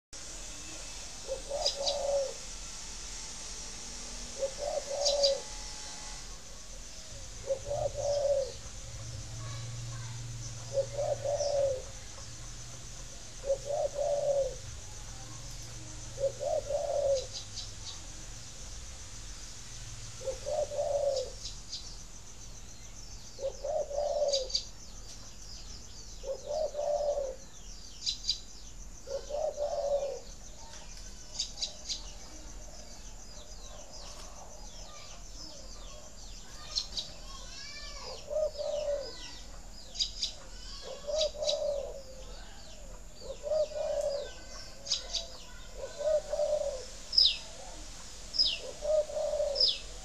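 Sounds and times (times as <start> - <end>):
dove cooing: 1.2 - 2.5, 4.2 - 5.6, 6.7 - 12.2, 13.0 - 17.6, 20.2 - 21.5, 23.4 - 24.7, 26.2 - 27.5, 29.0 - 30.4, 37.6 - 50.0
high bird chirps: 43.2 - 47.5.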